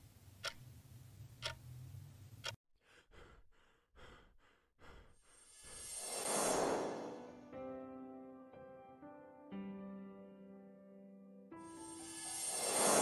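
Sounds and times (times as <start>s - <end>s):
clock ticking: 0.4s - 0.6s, 1.4s - 1.6s
short heavy breaths: 2.8s - 6.0s
whoosh: 5.6s - 7.3s.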